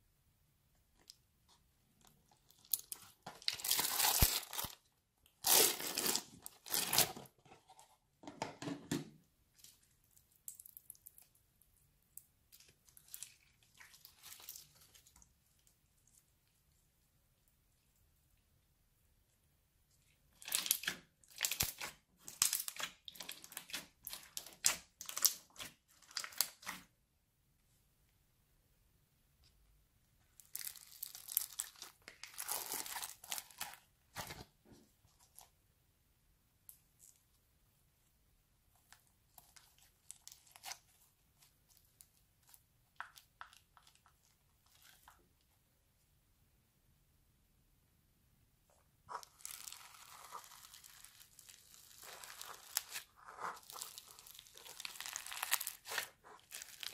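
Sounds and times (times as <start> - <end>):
crunchy slime squished by hand: 2.0 - 7.4, 12.4 - 16.2, 20.3 - 26.9, 30.4 - 35.5, 49.1 - 56.9.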